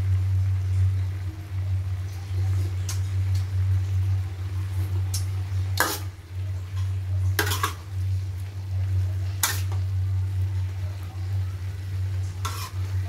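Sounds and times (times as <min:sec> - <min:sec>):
metal spatula scraping wok: 0:05.8 - 0:06.1, 0:07.4 - 0:07.9, 0:09.4 - 0:09.8, 0:12.2 - 0:13.0.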